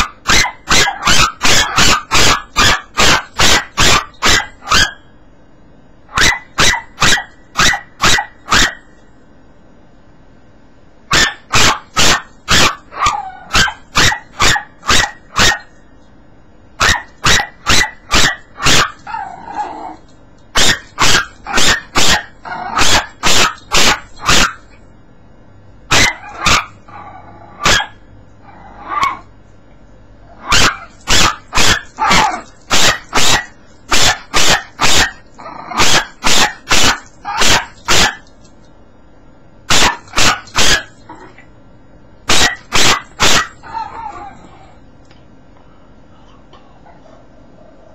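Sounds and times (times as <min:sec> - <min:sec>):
puppy barking: 0:00.0 - 0:05.1, 0:06.1 - 0:08.9, 0:11.1 - 0:15.8, 0:16.8 - 0:19.7, 0:20.6 - 0:24.8, 0:25.9 - 0:26.9, 0:27.6 - 0:28.0, 0:30.4 - 0:38.3, 0:39.7 - 0:41.1, 0:42.3 - 0:44.4.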